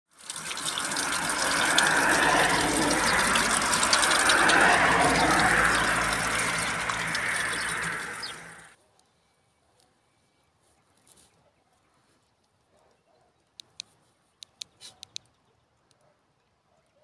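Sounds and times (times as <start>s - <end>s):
water splashing onto stone: 0.1s - 8.7s.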